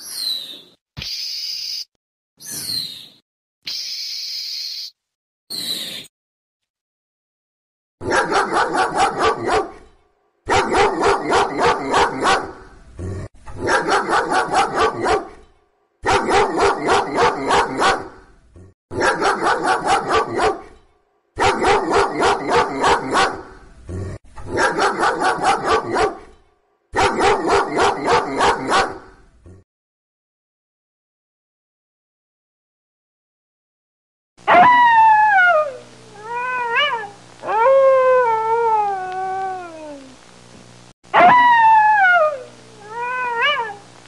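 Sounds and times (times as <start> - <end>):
dog barking: 8.0 - 9.9, 10.5 - 12.6, 13.6 - 15.4, 16.0 - 18.2, 18.9 - 20.8, 21.4 - 23.6, 24.5 - 26.4, 27.0 - 29.2.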